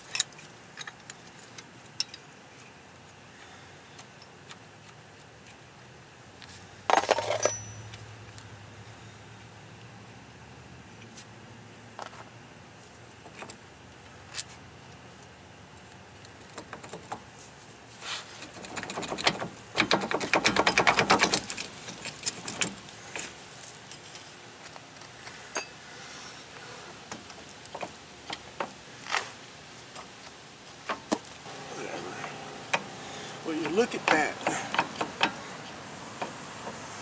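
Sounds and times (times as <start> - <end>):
metal clinks and knocks: 6.9 - 8.0, 18.4 - 24.3, 30.9 - 31.4
rapid metallic clicks: 18.4 - 22.8.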